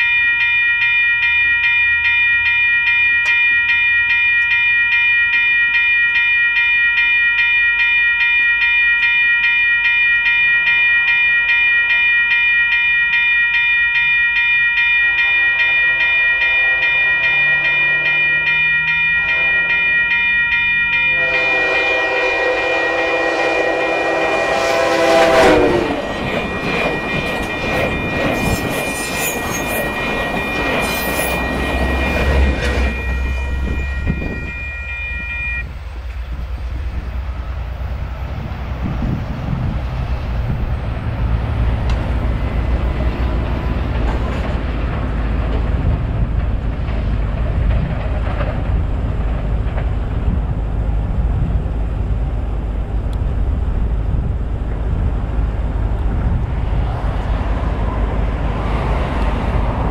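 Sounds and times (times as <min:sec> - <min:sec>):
crossing bells ringing: 0:00.0 - 0:59.9
train air horn: 0:15.1 - 0:18.3, 0:19.3 - 0:19.9, 0:21.1 - 0:26.1
train wheel clatter: 0:25.2 - 0:34.6, 0:38.8 - 0:51.7.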